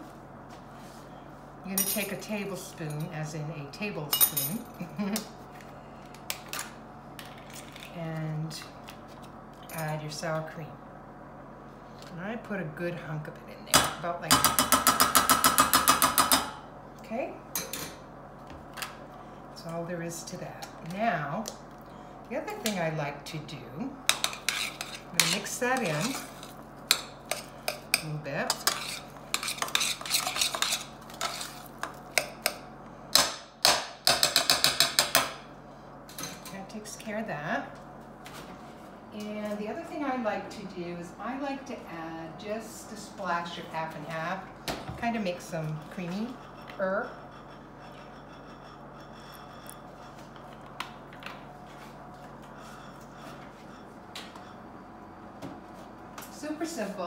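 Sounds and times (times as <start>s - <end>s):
kitchen room hum: 0.0s - 57.0s
metal spoon scraping saucepan: 24.1s - 31.7s, 46.0s - 50.2s.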